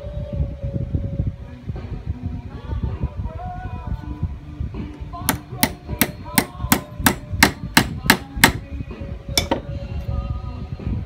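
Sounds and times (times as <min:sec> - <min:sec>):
hammer striking metal die: 0:05.3 - 0:08.6, 0:09.4 - 0:09.6.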